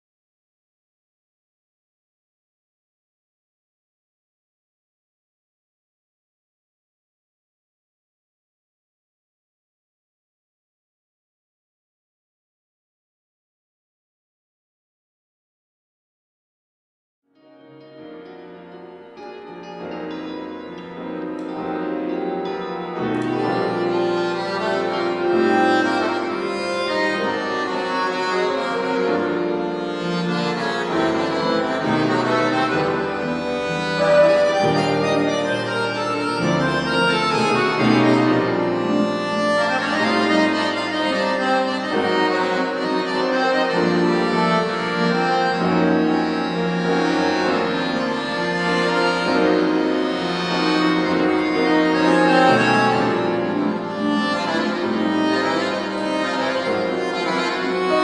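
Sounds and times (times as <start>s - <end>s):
instrumental ensemble music: 18.2s - 58.0s.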